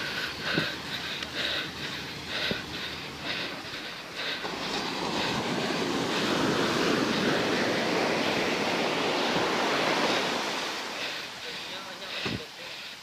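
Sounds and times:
wave breaking on sand: 4.4 - 12.5.

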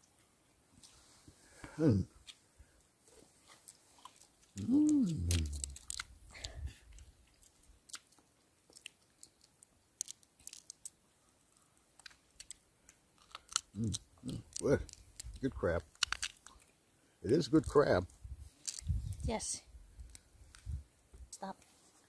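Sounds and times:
chewing crunches: 3.4 - 11.0, 12.0 - 16.7
crab shell cracking: 4.0 - 11.0, 12.0 - 16.7, 18.6 - 18.9
person humming: 4.6 - 5.9, 13.8 - 14.0.

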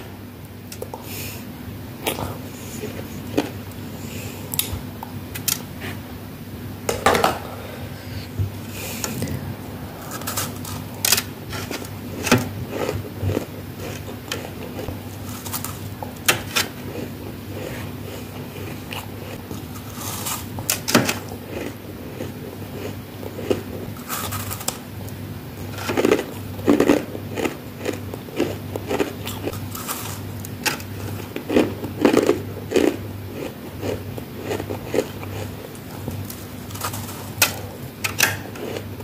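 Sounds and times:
frost crunching being chewed: 2.0 - 3.9, 10.0 - 39.0.

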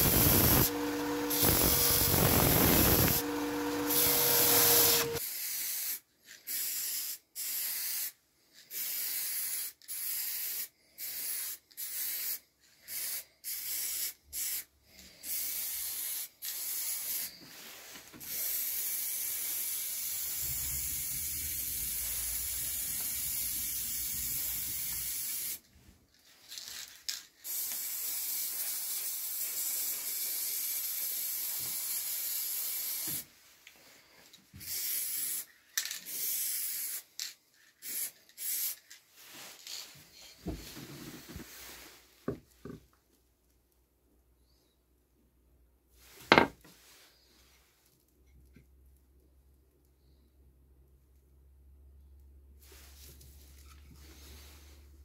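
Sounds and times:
sander whining: 0.0 - 5.2
aerosol spray can hissing: 0.0 - 17.4, 18.2 - 25.6, 27.4 - 33.3.

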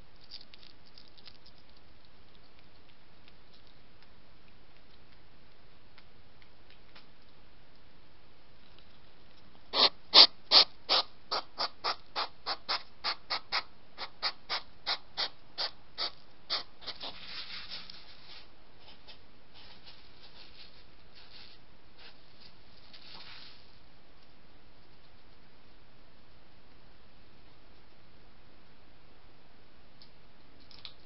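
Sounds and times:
hedgehog crunching dry kibble: 0.1 - 7.3
spines rustling against camera: 16.8 - 23.8.

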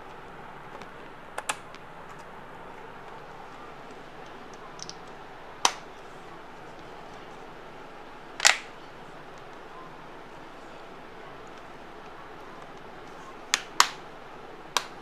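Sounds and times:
plastic clips snapping into place: 8.4 - 8.7, 13.5 - 14.0.

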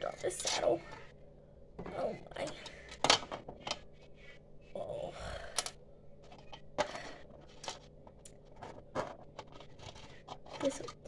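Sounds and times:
plastic toys clicking and tapping: 5.6 - 11.0.

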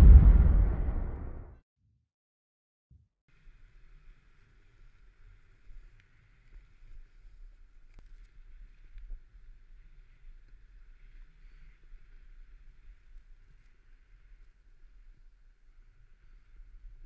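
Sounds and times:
low rumble of wind: 0.0 - 1.5.

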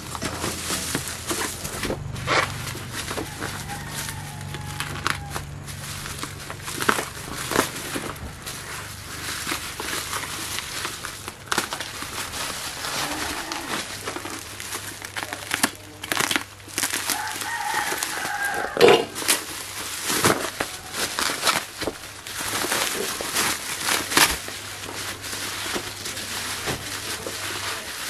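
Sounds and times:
plastic packaging crinkling: 0.0 - 28.0
rooster crowing: 2.7 - 8.5, 12.5 - 14.0, 17.0 - 19.5, 20.1 - 21.7.

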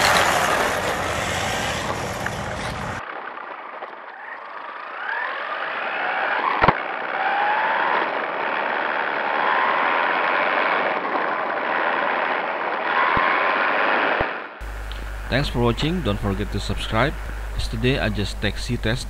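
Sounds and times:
electric motor whining: 0.0 - 3.0, 14.6 - 19.0
tyre and wind noise: 0.0 - 4.0.

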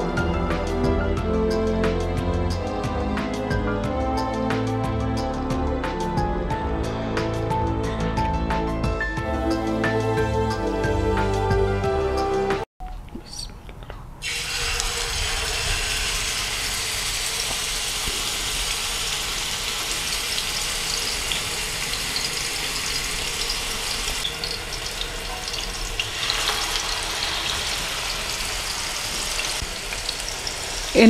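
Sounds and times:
meat sizzling in hot oil: 14.2 - 31.0.

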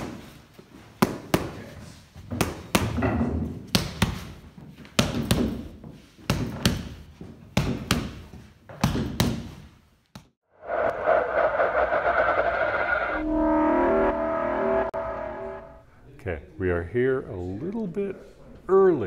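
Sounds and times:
boxing gloves slapping mitts: 0.0 - 1.7, 2.3 - 3.0, 3.7 - 10.3.

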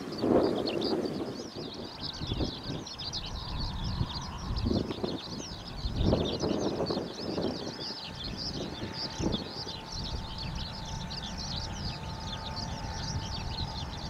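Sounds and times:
birds chirping: 0.0 - 14.0
faint steady hum: 0.0 - 14.0
wind on microphone: 0.0 - 14.0.

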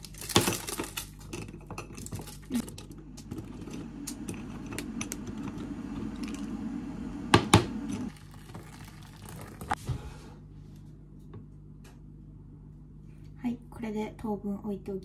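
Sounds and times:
hot water pouring into bowl: 4.0 - 9.8.

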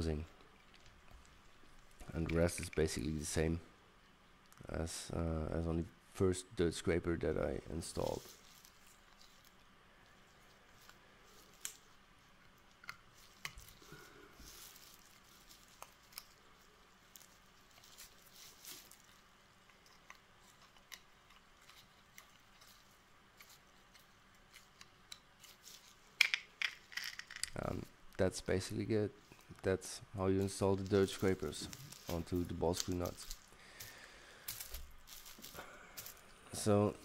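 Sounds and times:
handling clicks and rustles: 8.0 - 28.3, 29.3 - 36.8.

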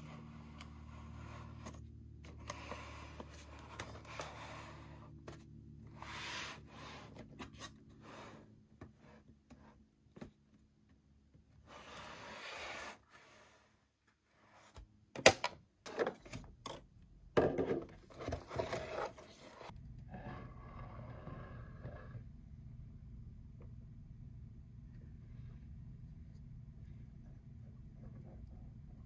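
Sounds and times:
low hum: 19.6 - 29.0.

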